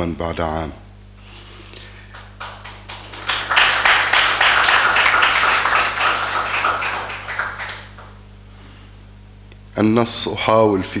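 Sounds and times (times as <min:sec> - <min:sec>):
audience applauding: 0:02.1 - 0:08.2.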